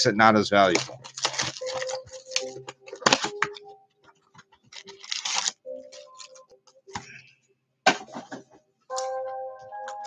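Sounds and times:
card packs being torn open: 0.6 - 3.7, 4.6 - 6.5.

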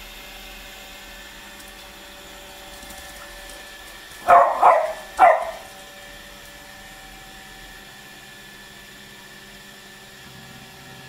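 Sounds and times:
dog barking: 4.2 - 5.8.

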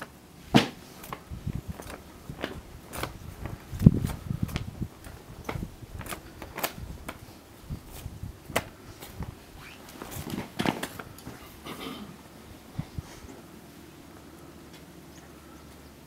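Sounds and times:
handling knocks and rustles: 0.0 - 12.0.

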